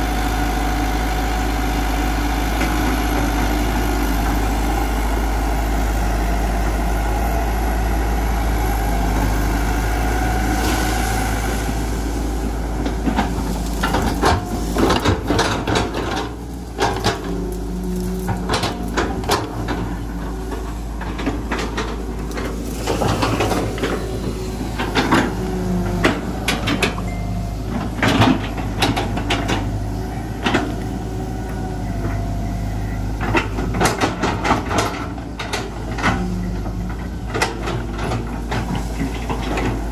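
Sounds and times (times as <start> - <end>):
excavator diesel engine running: 0.0 - 39.9
excavator bucket clanking: 12.4 - 39.9.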